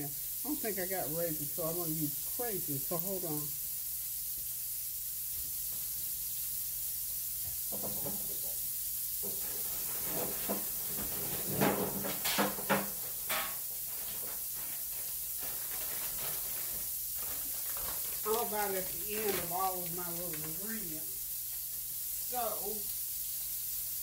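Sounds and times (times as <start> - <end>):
hamburgers sizzling in a skillet: 0.0 - 24.0.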